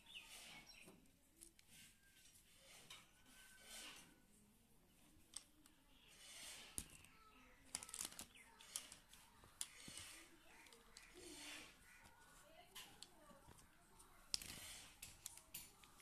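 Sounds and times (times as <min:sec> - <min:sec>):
plastic toys clicking on table: 0:06.6 - 0:16.0.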